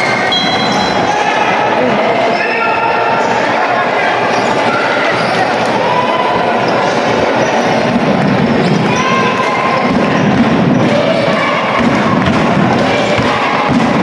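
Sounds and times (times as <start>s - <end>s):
crowd voices and shouts: 0.0s - 14.0s
basketball bouncing: 9.8s - 14.0s.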